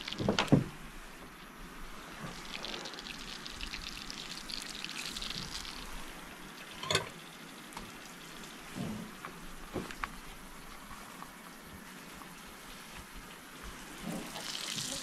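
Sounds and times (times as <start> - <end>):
fish fillet sizzling in hot oil: 1.9 - 6.8, 14.0 - 15.0.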